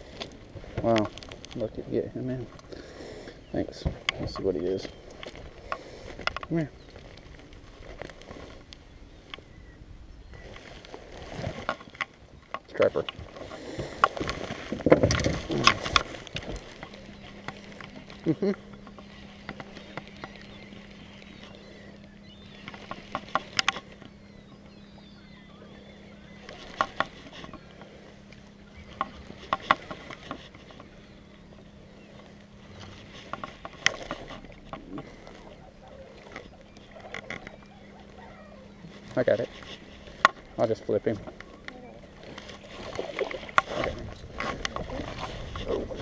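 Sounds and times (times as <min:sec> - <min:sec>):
steady low hum: 0:00.0 - 0:46.0
rustling and knocks of handling fish: 0:03.7 - 0:08.7, 0:10.4 - 0:24.7, 0:26.4 - 0:38.2.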